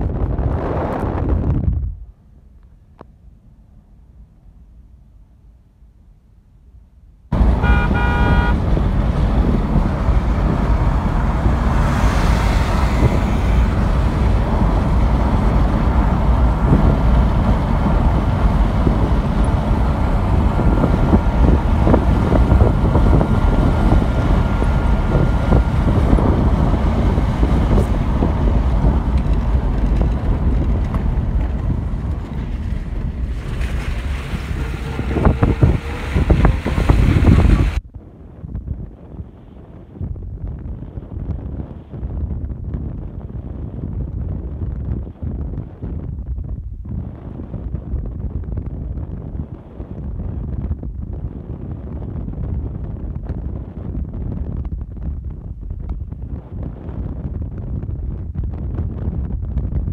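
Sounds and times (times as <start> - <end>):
wind rushing over microphone: 0.0 - 3.1, 7.3 - 59.9
vehicle road noise: 0.0 - 6.4, 7.3 - 59.9
horn toot: 7.4 - 8.8.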